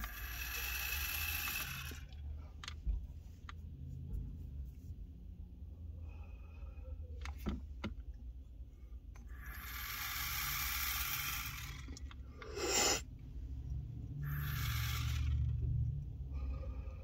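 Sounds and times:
airy hiss of inhaling: 0:12.4 - 0:13.1
loud exhale: 0:12.4 - 0:13.1.

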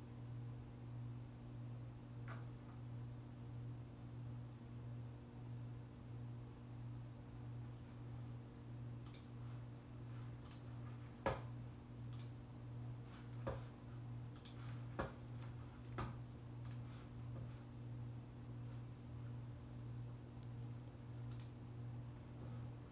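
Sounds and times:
steady low hum: 0:00.0 - 0:22.9
light high-pitched ticks: 0:12.1 - 0:12.4, 0:20.4 - 0:21.6.

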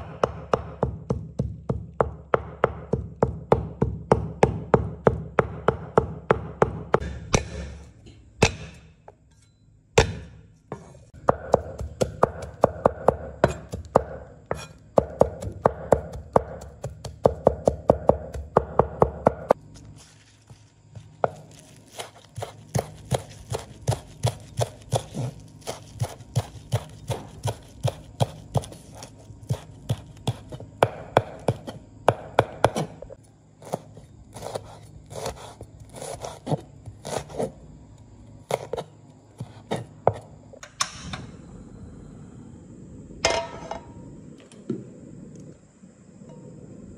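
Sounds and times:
cleaver chopping on wooden board: 0:00.0 - 0:07.8, 0:08.4 - 0:08.8, 0:10.0 - 0:19.6, 0:21.2 - 0:33.0.

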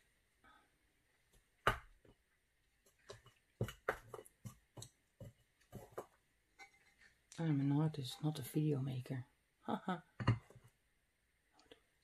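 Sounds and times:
light irregular taps and knocks: 0:02.8 - 0:07.0.

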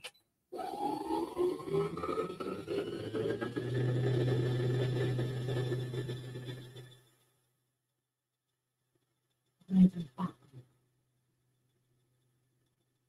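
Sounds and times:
embroidery machine motor whine: 0:00.6 - 0:07.1.

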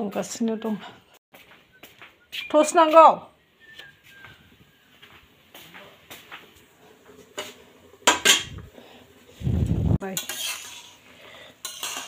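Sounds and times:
pot clanging: 0:07.3 - 0:08.6, 0:10.0 - 0:12.0
metal pots and lids clinking: 0:07.3 - 0:08.7, 0:10.0 - 0:12.0.

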